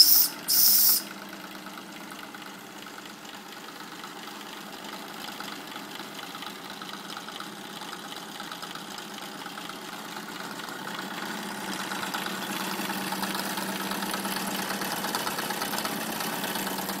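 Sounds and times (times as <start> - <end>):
steam engine mechanical clatter: 0.0 - 1.2, 5.0 - 17.0.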